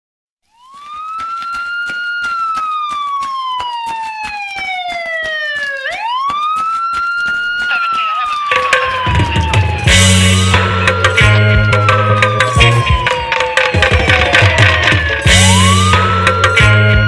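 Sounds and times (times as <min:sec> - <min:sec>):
siren wail: 0:00.4 - 0:17.0
quick ticking beat: 0:04.6 - 0:16.7
drums and bass: 0:08.5 - 0:17.0.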